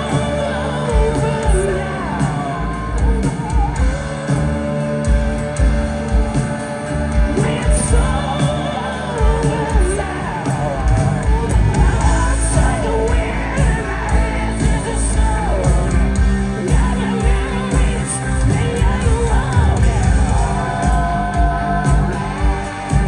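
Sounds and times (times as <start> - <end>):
electric guitar lead line: 0.0 - 23.0
live blues-rock band: 0.0 - 23.0.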